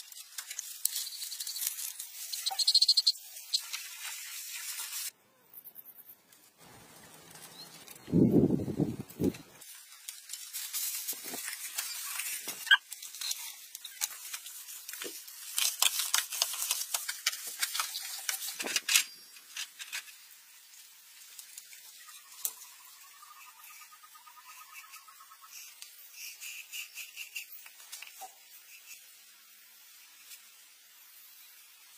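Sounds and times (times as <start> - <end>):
insect chirping: 0.6 - 3.7.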